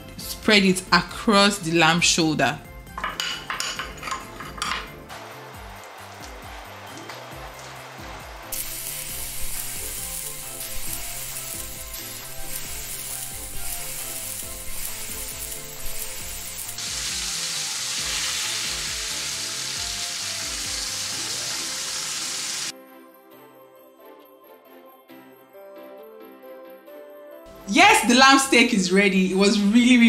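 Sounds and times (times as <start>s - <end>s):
meat sizzling in a grill pan: 8.5s - 22.7s.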